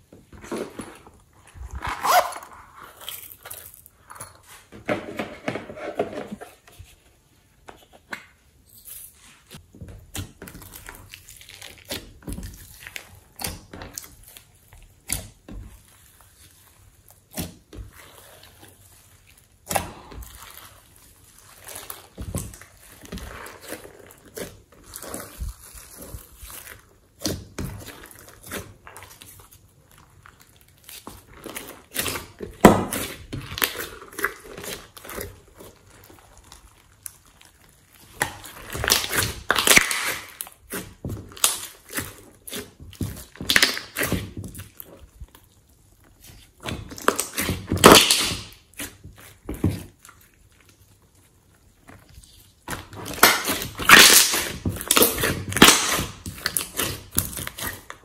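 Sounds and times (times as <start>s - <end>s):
slime squished by hand: 9.6s - 58.0s.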